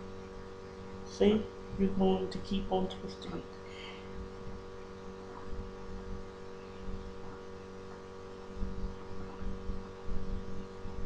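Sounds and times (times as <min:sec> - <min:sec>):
electrical mains hum: 0:00.0 - 0:11.0.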